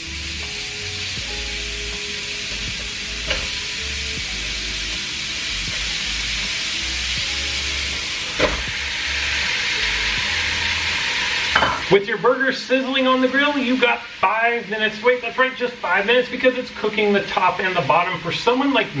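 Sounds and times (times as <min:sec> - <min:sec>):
burger patties sizzling on grill: 0:00.0 - 0:12.0.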